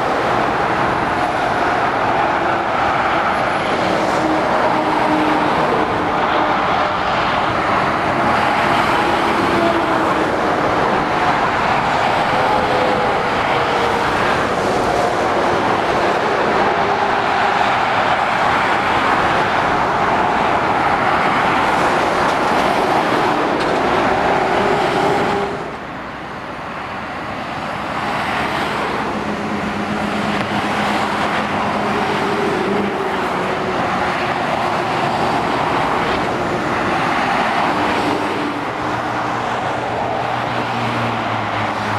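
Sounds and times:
motorway traffic rushing: 0.0 - 41.9.

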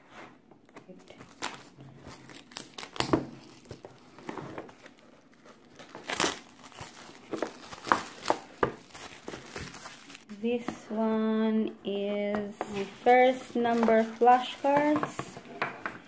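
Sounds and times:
plastic shrink-wrap crinkling: 1.1 - 10.4, 12.8 - 15.4.

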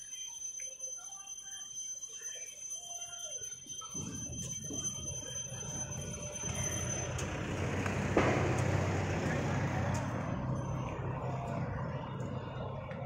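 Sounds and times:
steady high-pitched whine: 0.0 - 13.0
vehicle engine and tyre noise: 4.2 - 13.0.

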